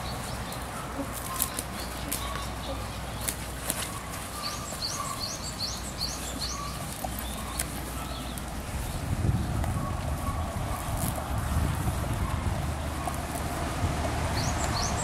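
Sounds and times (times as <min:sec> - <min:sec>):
bird chirping: 0:00.0 - 0:11.6, 0:14.3 - 0:15.0
wind rumble on microphone: 0:08.0 - 0:15.0.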